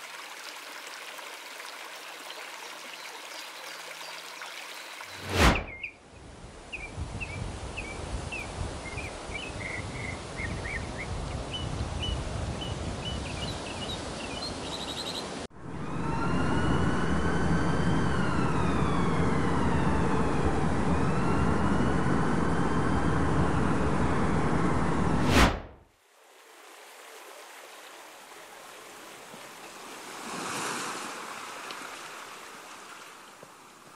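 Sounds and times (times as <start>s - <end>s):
birds chirping: 2.3s - 6.0s, 6.7s - 15.4s
siren wailing: 15.5s - 25.2s.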